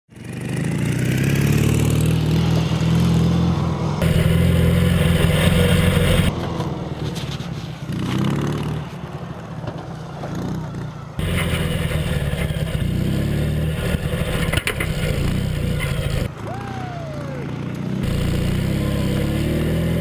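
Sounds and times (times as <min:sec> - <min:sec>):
motorcycle engine running: 0:00.1 - 0:06.4, 0:10.5 - 0:20.0.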